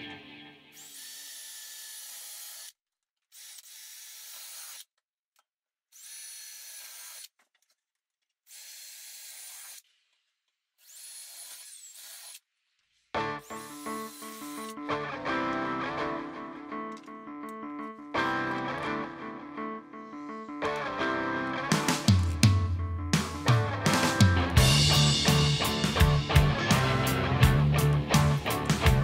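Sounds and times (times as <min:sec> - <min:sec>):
cordless drill whine: 0:13.4 - 0:14.8.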